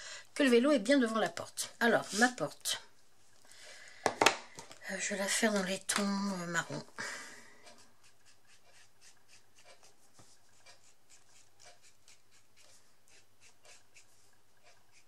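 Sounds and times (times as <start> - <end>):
marker scratching on rubber stamp: 8.0 - 15.0.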